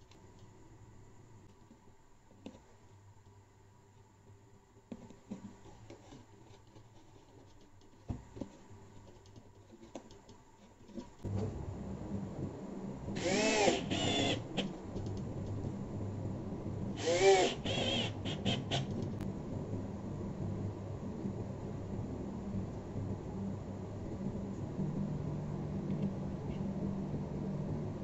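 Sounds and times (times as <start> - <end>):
cordless drill whine: 13.2 - 14.6, 17.0 - 18.9.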